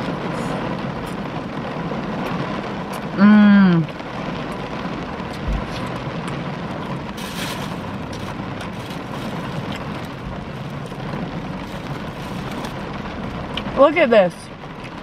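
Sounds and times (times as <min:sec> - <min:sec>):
heavy rain on car roof: 0:00.0 - 0:15.0
short crackle: 0:06.9 - 0:13.0.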